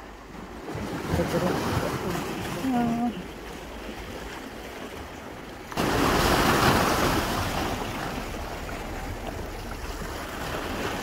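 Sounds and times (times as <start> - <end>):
rush of water: 0.0 - 11.0
surf washing against concrete: 0.7 - 11.0.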